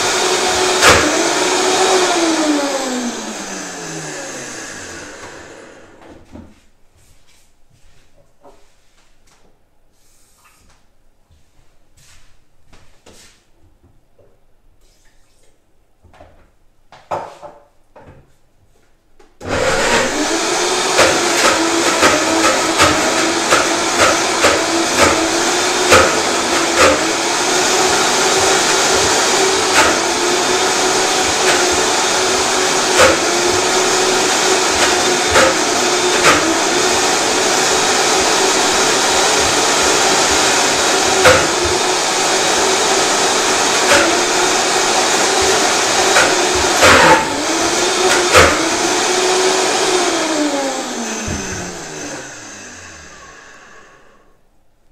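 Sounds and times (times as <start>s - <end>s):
blender running: 0.0s - 6.1s, 19.4s - 54.4s.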